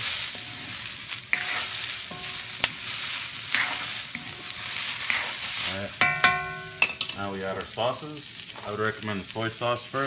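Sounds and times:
spatula scraping and knocking pan: 0:00.0 - 0:07.2
vegetables sizzling in a wok: 0:00.0 - 0:10.0.

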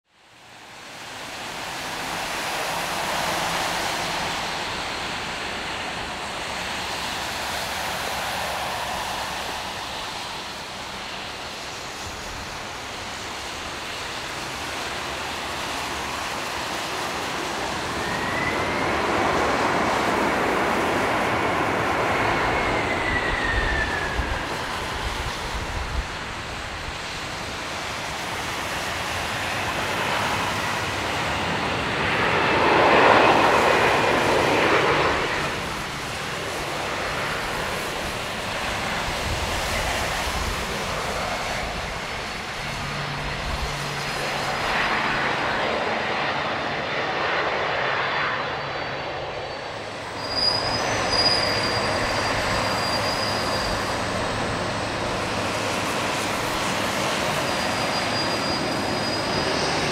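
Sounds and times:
jet engines roaring in reverse thrust: 0:00.1 - 0:59.9
engine whine gliding up: 0:17.2 - 0:27.4.

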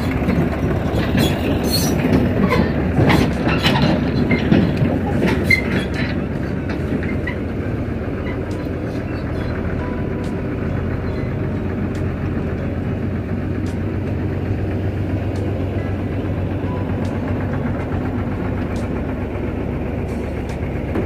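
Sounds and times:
metallic clanks and knocks: 0:00.0 - 0:08.8
diesel engines running: 0:00.0 - 0:21.0.

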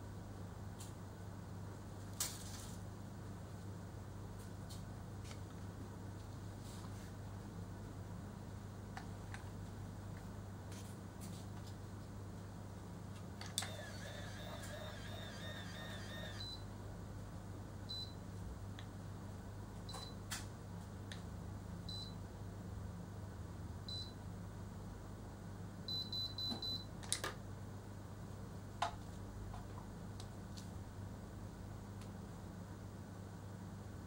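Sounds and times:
steady low hum: 0:02.8 - 0:26.9
warbling whir of curler: 0:13.6 - 0:16.5
short beeps: 0:13.7 - 0:16.6.

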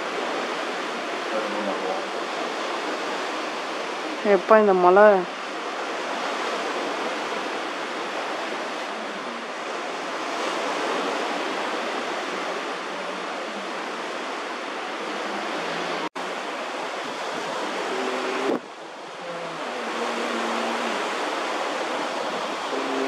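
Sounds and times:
rushing water: 0:00.0 - 0:23.0
wind: 0:00.0 - 0:23.0.

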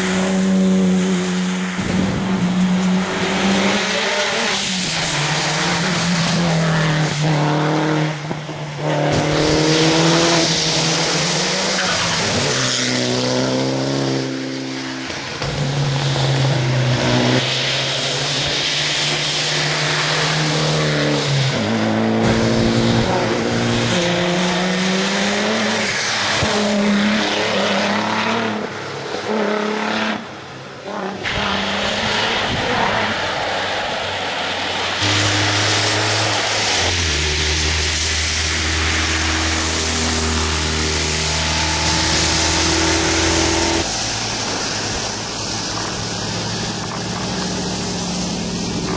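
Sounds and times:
rally car engines revving: 0:00.0 - 0:48.9
tyres hissing on wet road: 0:00.0 - 0:48.9.

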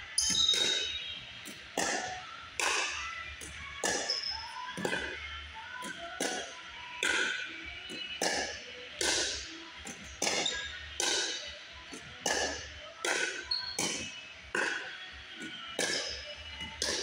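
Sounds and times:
paddles striking plastic ball: 0:05.8 - 0:11.3, 0:11.9 - 0:17.0.

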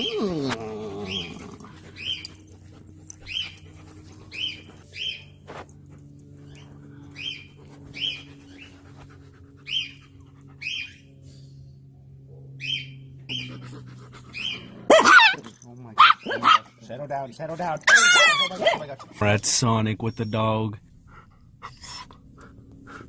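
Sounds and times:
faint low hum: 0:00.0 - 0:23.0
animal chirping calls: 0:09.6 - 0:10.0, 0:10.6 - 0:11.1, 0:12.6 - 0:13.6, 0:14.3 - 0:15.4, 0:17.9 - 0:18.9.

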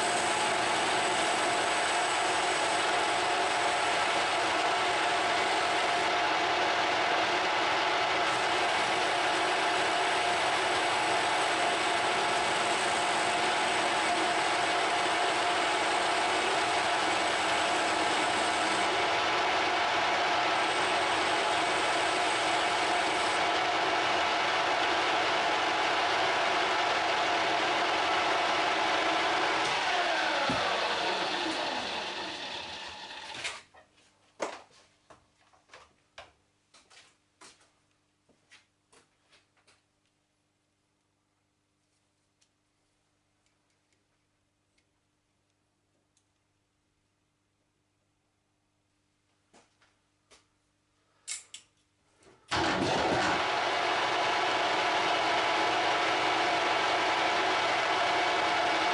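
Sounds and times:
metal lathe cutting: 0:00.0 - 0:33.4, 0:52.5 - 0:58.9.

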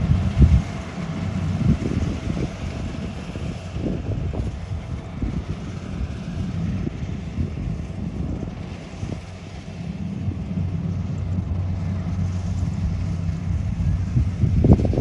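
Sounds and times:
combine harvester engine running: 0:00.0 - 0:15.0
wind buffeting microphone: 0:00.0 - 0:15.0.

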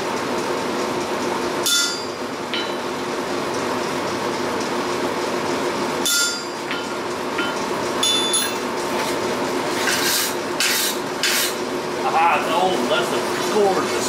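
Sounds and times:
gas forge roaring: 0:00.0 - 0:14.0
hammer clinking on anvil: 0:01.6 - 0:02.8, 0:06.0 - 0:08.6
wooden block scraping blade: 0:09.0 - 0:11.6.

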